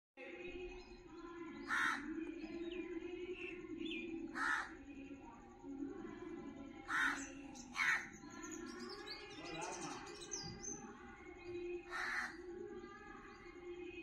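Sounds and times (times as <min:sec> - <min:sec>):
small birds chirping: 0:00.2 - 0:14.0
crows cawing: 0:01.6 - 0:02.1, 0:04.3 - 0:04.8, 0:06.9 - 0:08.2, 0:11.9 - 0:12.5.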